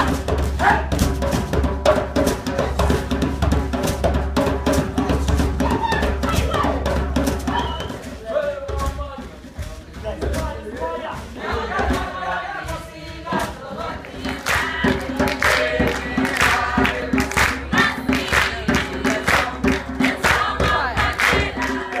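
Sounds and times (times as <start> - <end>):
percussive beat: 0.0 - 22.0
choir singing in harmony: 10.8 - 22.0.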